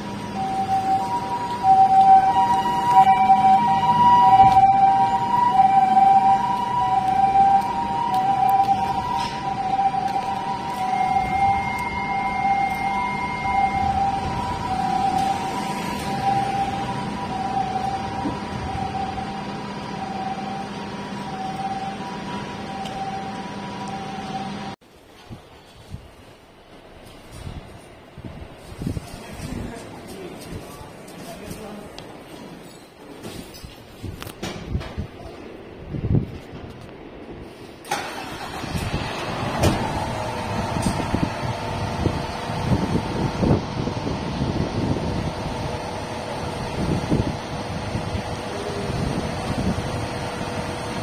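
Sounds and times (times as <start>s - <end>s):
ambulance two-tone siren: 0.0s - 24.8s, 38.1s - 51.0s
diesel truck engine running: 0.0s - 24.8s, 38.0s - 51.0s
held whine: 0.0s - 24.8s, 38.1s - 51.0s.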